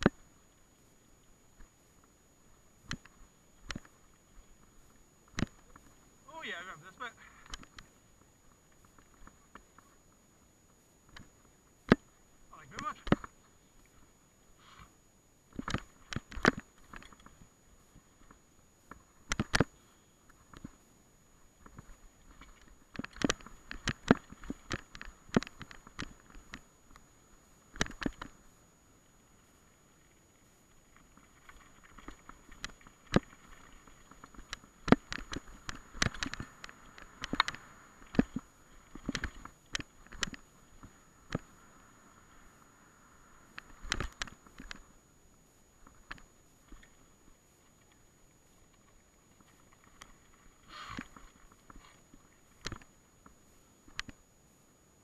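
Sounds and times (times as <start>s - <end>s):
tyre noise on trail: 0.0s - 55.0s
bike rattling over stony trail: 21.6s - 27.0s, 29.8s - 41.6s.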